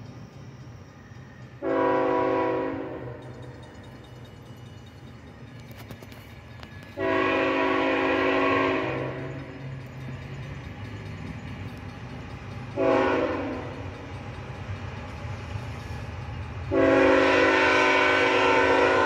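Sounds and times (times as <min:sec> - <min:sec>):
locomotive air horn blasts: 0:01.6 - 0:03.2, 0:07.0 - 0:09.3, 0:12.8 - 0:13.8, 0:16.7 - 0:19.0.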